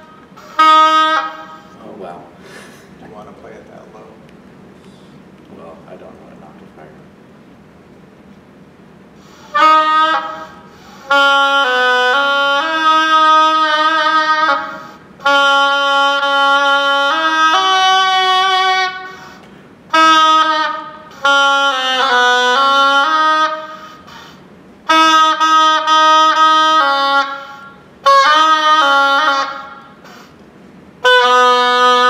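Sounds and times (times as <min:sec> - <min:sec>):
oboe slow melody: 0:00.0 - 0:02.2, 0:09.2 - 0:30.4, 0:31.0 - 0:32.0.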